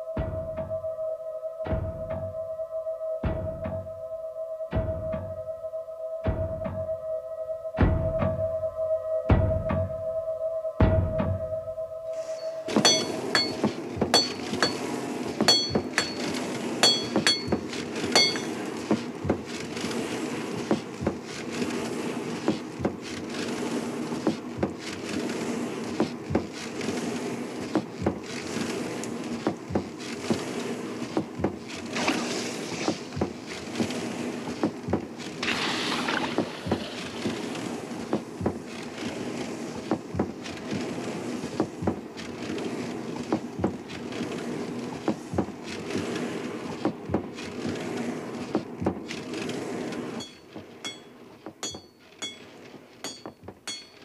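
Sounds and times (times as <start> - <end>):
constant low hum: 0.0 - 47.8
hammer striking iron on anvil: 12.8 - 18.6, 50.2 - 54.0.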